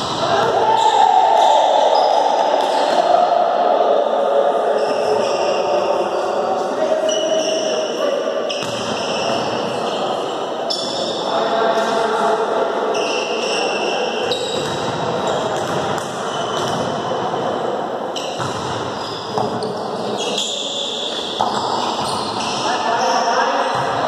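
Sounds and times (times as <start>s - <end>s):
players' voices echoing: 0.0s - 24.0s
ball bouncing on court floor: 8.5s - 9.5s, 14.2s - 17.0s, 18.2s - 20.1s, 21.1s - 22.6s, 23.7s - 24.0s.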